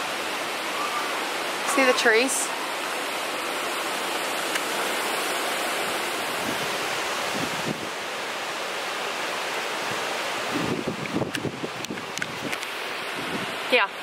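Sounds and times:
wind rushing through trees: 0.0 - 14.0
wind buffeting microphone: 5.8 - 8.1, 9.7 - 13.8.

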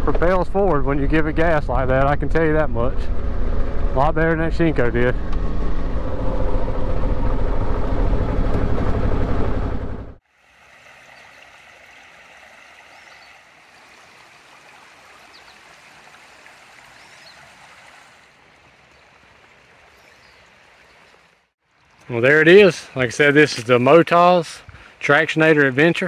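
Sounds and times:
creek flowing over rocks: 10.2 - 24.0.

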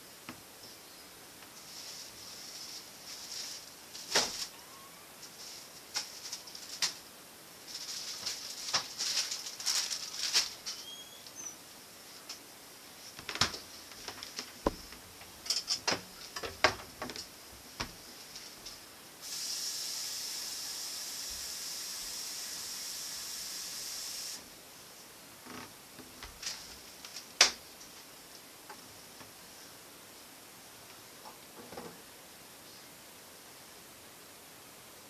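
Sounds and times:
steady hiss: 0.0 - 35.0
plastic bags crinkling: 7.7 - 10.9
items clicking and knocking: 13.2 - 18.0.

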